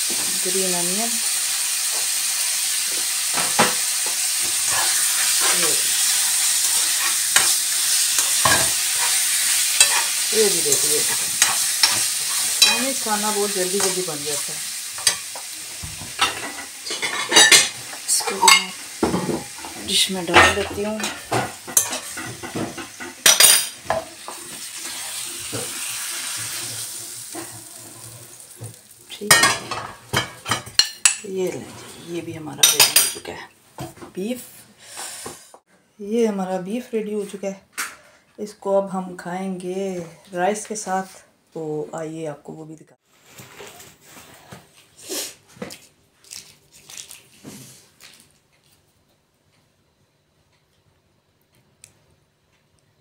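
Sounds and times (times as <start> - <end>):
meat and onions sizzling in a pan: 0.0 - 31.4.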